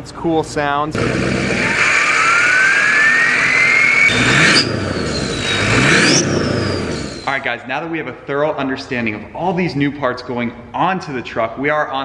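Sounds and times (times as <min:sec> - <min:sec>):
diesel engine revving: 0:01.0 - 0:07.3
turbocharger whistle: 0:01.0 - 0:07.4.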